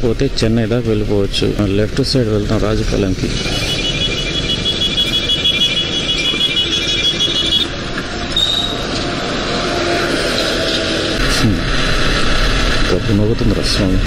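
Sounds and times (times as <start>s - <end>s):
motorbike road and wind noise: 0.0s - 14.0s
high steady tone: 2.9s - 9.0s.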